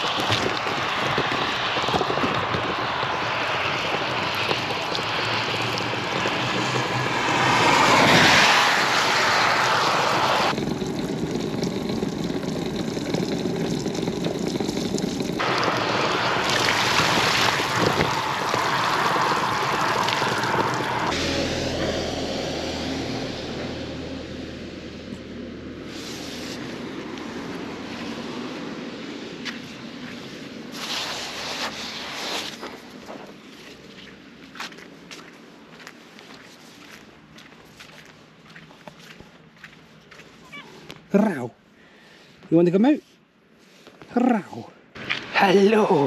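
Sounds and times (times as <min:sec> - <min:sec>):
wind noise on microphone: 0:00.0 - 0:21.4
bicycle tyres hissing on wet road: 0:00.0 - 0:25.0, 0:25.7 - 0:40.9, 0:41.8 - 0:44.1
passing vehicle: 0:00.0 - 0:30.7
rain: 0:00.0 - 0:37.5.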